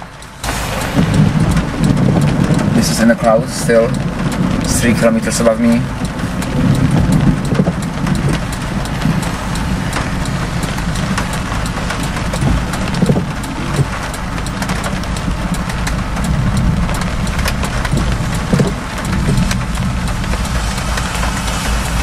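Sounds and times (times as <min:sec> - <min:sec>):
car engine idling: 0:00.0 - 0:22.0
raindrops tapping on car: 0:00.0 - 0:22.0.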